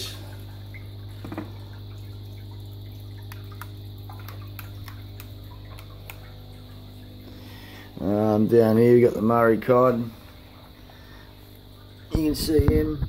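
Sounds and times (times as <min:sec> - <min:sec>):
aquarium pumps humming: 0:00.0 - 0:13.0
water drips and splashes: 0:00.0 - 0:13.0
water trickling: 0:00.0 - 0:13.0.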